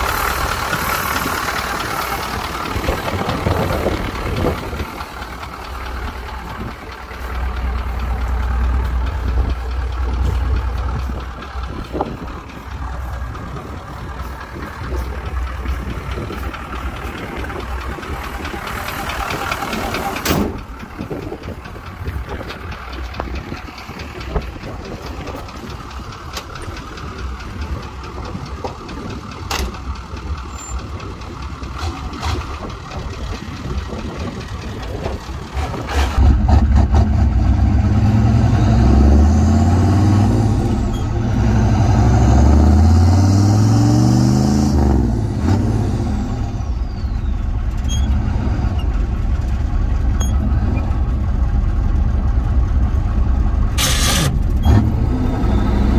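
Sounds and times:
gear shifts: 0:00.0 - 0:37.0
diesel truck engine accelerating: 0:00.0 - 0:55.9.

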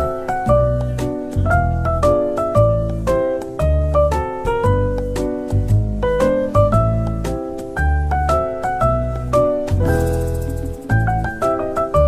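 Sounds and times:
keyboard melody: 0:00.0 - 0:12.0
bass line: 0:00.5 - 0:12.0.

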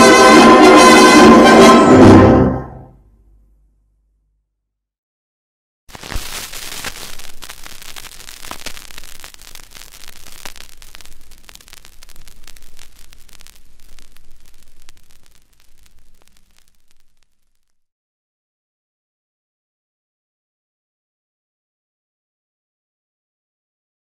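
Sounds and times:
vinyl record surface crackle: 0:05.9 - 0:17.9.

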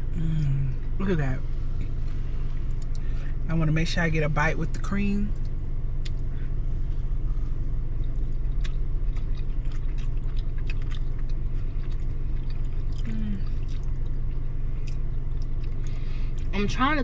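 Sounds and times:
car cabin low rumble: 0:00.0 - 0:17.0
people chewing cookie: 0:00.1 - 0:01.0, 0:01.8 - 0:03.3, 0:05.4 - 0:16.6.

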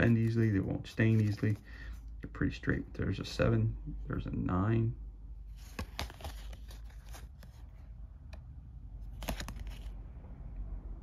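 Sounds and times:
playing cards clicking and snapping: 0:05.6 - 0:07.4, 0:09.1 - 0:09.9.

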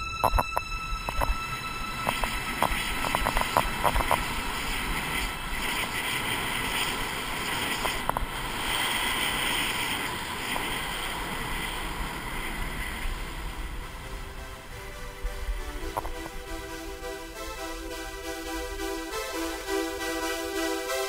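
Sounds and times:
wind rushing over microphone: 0:00.0 - 0:16.4
skis scraping on snow: 0:02.1 - 0:21.0.

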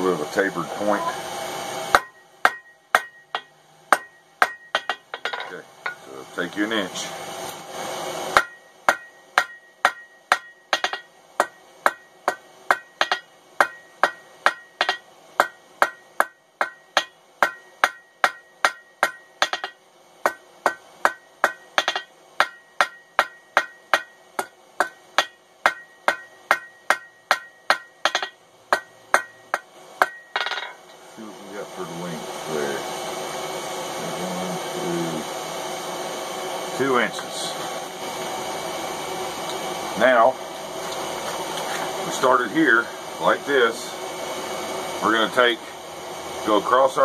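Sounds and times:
anvil ringing: 0:01.9 - 0:06.1, 0:08.4 - 0:30.8
hammer striking steel on anvil: 0:01.9 - 0:06.1, 0:08.3 - 0:30.9.

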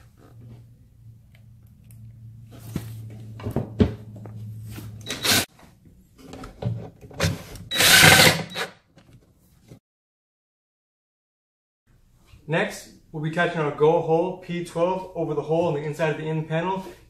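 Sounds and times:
impact driver driving screws: 0:07.7 - 0:08.8.

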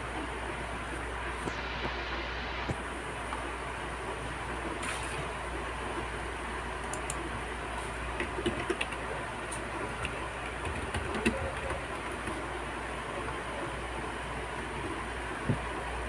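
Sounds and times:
low hum and hiss: 0:00.0 - 0:16.0
keyboard and touchpad clicks: 0:08.2 - 0:09.0, 0:10.0 - 0:12.4.

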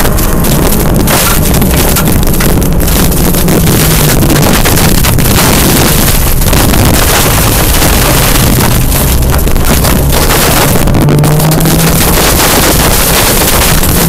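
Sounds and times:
gravel rushing under tyres: 0:00.0 - 0:14.0
rally car engine working hard: 0:00.0 - 0:14.0
wind on microphone: 0:00.0 - 0:14.0.

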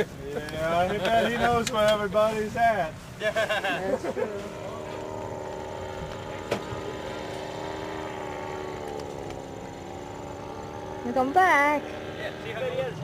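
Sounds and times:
paramotor engine droning overhead: 0:00.0 - 0:13.0.

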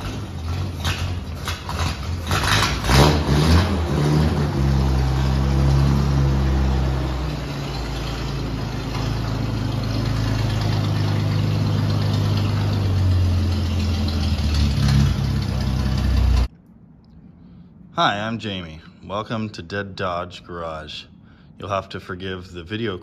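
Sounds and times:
engine idling: 0:00.0 - 0:16.5.

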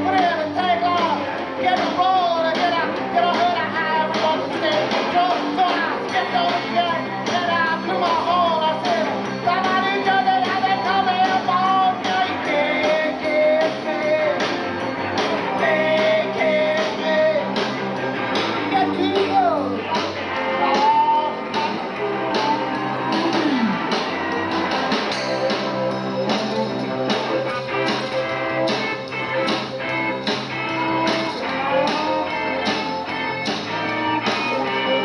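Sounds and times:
electric guitar: 0:00.0 - 0:35.0
live rock band playing: 0:00.0 - 0:35.0
wavering lead melody: 0:17.4 - 0:35.0.

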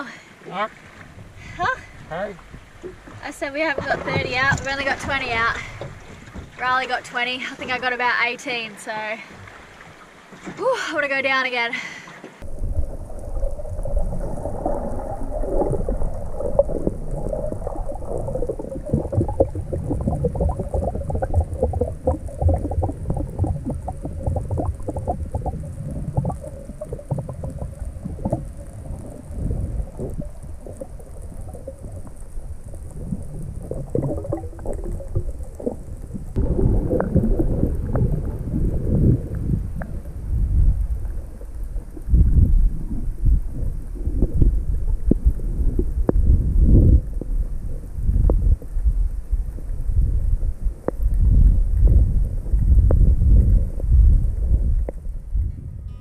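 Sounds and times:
muffled water rushing and bubbling: 0:00.0 - 0:56.0
small knocks and crackles: 0:02.4 - 0:06.9.

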